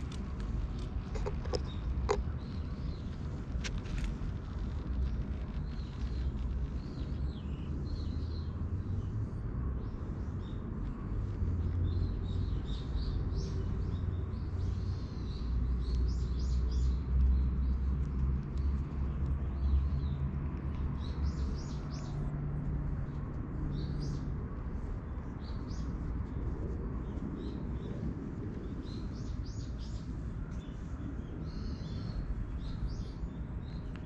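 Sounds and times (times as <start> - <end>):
small birds chirping: 0.0 - 34.0.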